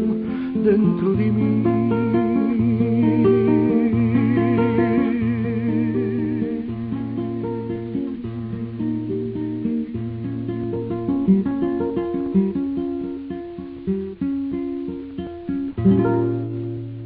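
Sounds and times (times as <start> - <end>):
guitar chord ringing out: 0.0 - 13.2
acoustic guitar picking melody: 0.0 - 17.0.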